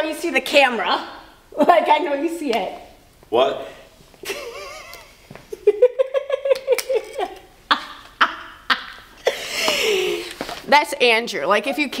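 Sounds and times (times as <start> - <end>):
woman laughing hard: 4.2 - 10.4.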